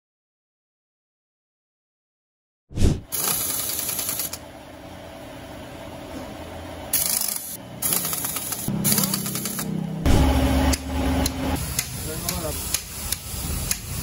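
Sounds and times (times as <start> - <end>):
pneumatic impact wrench rattling: 3.1 - 4.4, 6.9 - 9.7.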